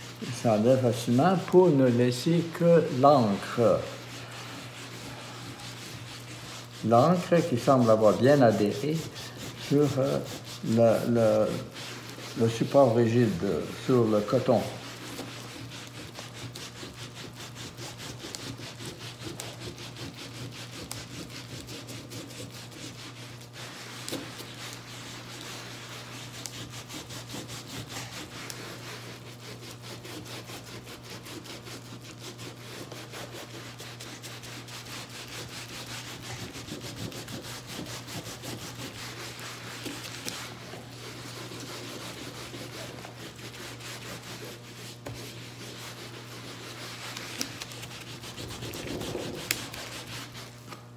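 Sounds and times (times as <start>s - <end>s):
damp cloth scrubbing paper: 0.0s - 50.9s.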